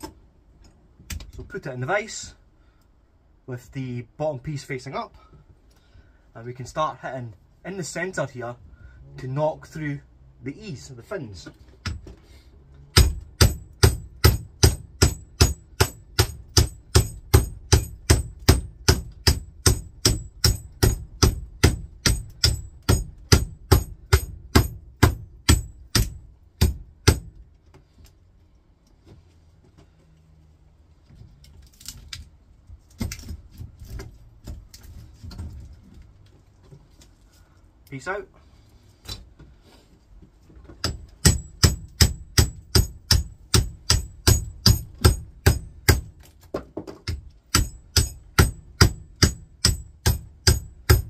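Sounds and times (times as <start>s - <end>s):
hammer striking steel: 12.9s - 27.3s, 40.8s - 46.1s, 47.0s - 51.0s.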